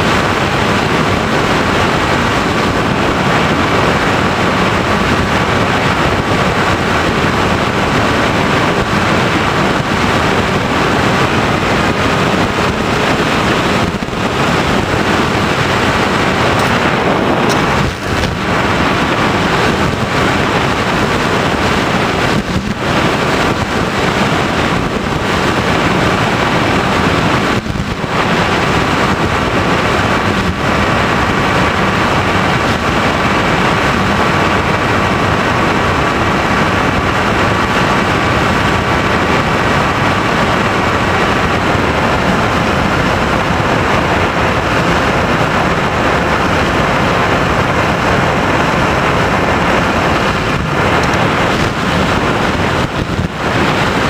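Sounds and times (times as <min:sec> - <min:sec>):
motor and propeller whine: 0:00.0 - 0:54.0
wind rush over microphone: 0:00.0 - 0:54.0.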